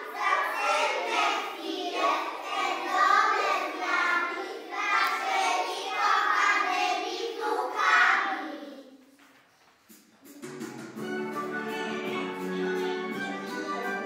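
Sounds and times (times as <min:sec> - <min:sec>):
children singing in unison: 0:00.0 - 0:08.8.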